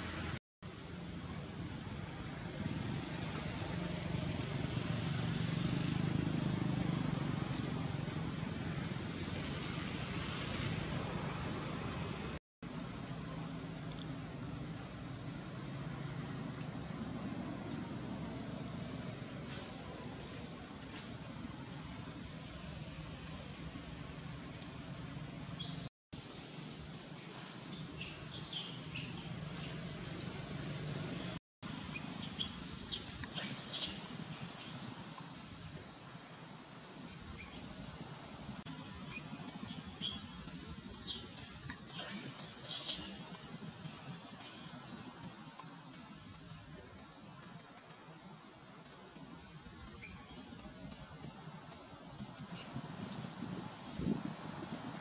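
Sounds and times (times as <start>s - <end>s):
even hiss: 25.5s - 55.0s.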